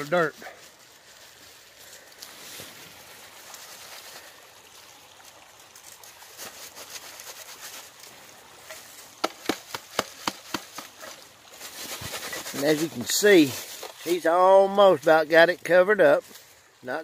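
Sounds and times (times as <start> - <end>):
dirt trickling through sifter: 0.0 - 16.8.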